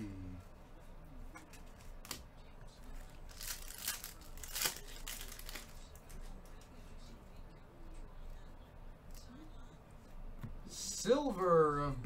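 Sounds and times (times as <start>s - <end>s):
wrapper tearing and crinkling: 3.0s - 6.2s.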